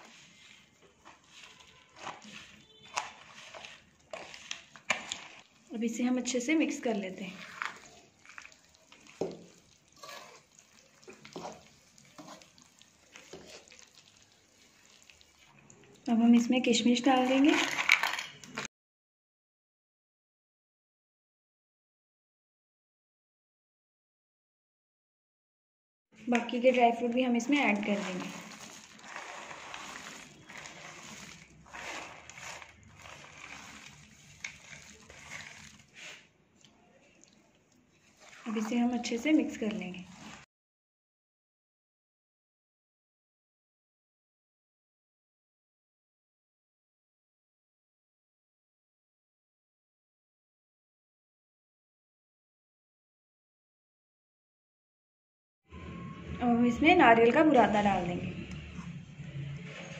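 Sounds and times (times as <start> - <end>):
steel spatula scraping a pan: 0.0 - 15.4, 27.5 - 36.3, 38.0 - 40.5
dry fruits spilling into pan: 17.3 - 18.7, 27.4 - 36.2.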